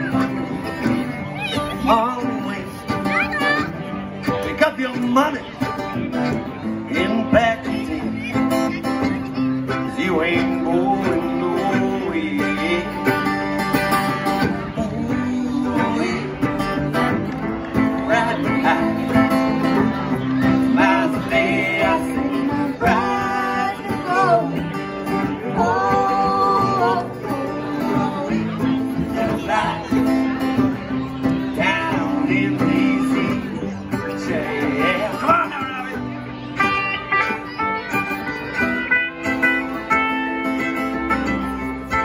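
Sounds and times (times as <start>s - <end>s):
fiddle melody: 0.0s - 42.0s
strummed acoustic guitar: 0.0s - 42.0s.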